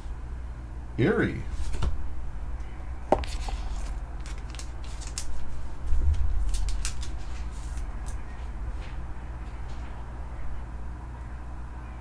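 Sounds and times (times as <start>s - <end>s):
plastic sleeve rustling: 3.2s - 8.2s.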